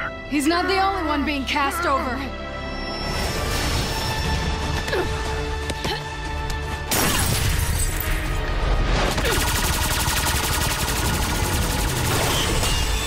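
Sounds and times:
dramatic orchestral score: 0.0 - 13.0.

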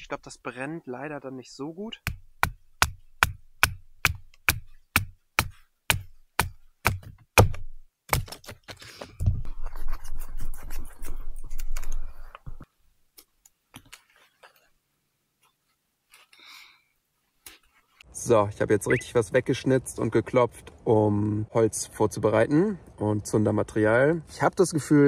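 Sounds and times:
knife batoning wood knocks: 2.0 - 8.6.

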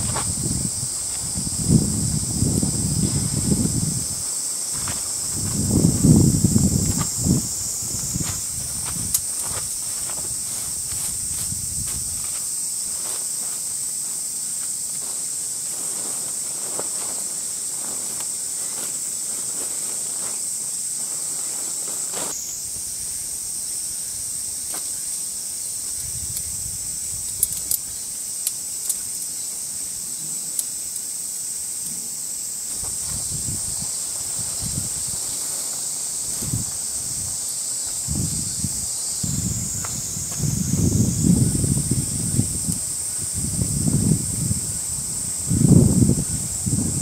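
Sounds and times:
tent fabric rustling: 0.0 - 22.6, 31.7 - 43.4
cicadas droning: 0.0 - 47.0.

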